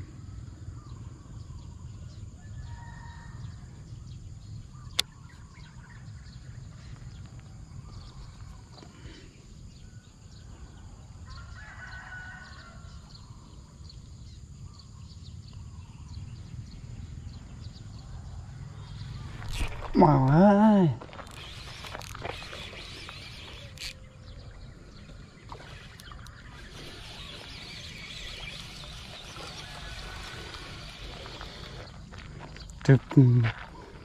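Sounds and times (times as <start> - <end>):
faint rooster crowing: 2.4 - 3.8, 11.1 - 13.1.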